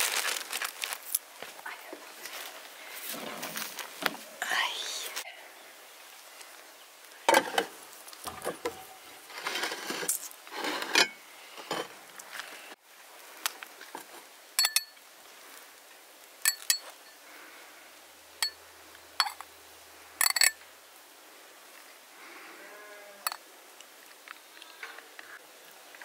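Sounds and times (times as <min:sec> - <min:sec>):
spoon clinking against pot and bowl: 0:14.6 - 0:15.0.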